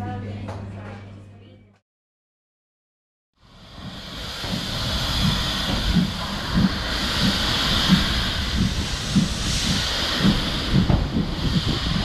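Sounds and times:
steam hissing: 0:03.4 - 0:12.0
steam locomotive chuffing beat: 0:03.4 - 0:12.0.

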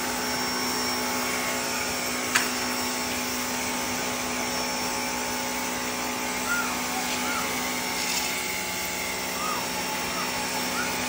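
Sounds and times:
pressure washer motor humming: 0:00.0 - 0:11.0
water spraying onto concrete: 0:06.6 - 0:11.0.

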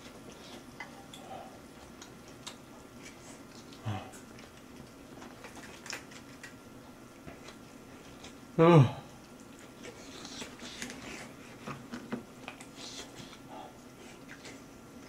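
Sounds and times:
person chewing: 0:00.0 - 0:08.5, 0:09.1 - 0:15.0
person humming low: 0:08.6 - 0:09.1.

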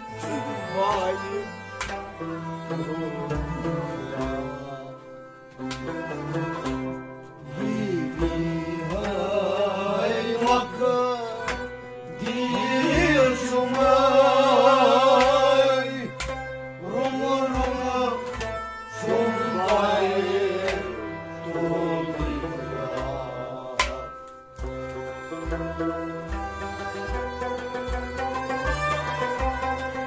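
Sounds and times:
harmonium chords: 0:00.0 - 0:30.0
man singing: 0:00.3 - 0:01.6, 0:02.8 - 0:05.2, 0:07.4 - 0:16.2, 0:16.8 - 0:18.3, 0:19.0 - 0:24.2
hand drum beat: 0:22.1 - 0:30.0.

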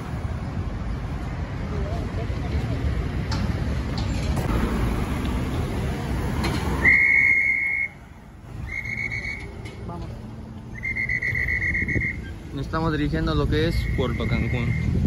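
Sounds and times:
road traffic rumble: 0:00.0 - 0:15.0
whistle blasts: 0:06.8 - 0:08.0, 0:08.6 - 0:09.6, 0:10.7 - 0:12.4, 0:13.7 - 0:14.9.

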